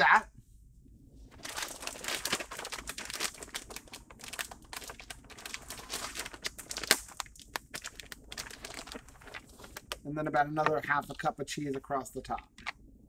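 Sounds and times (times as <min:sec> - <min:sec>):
plastic bag crinkling: 0:01.3 - 0:10.0.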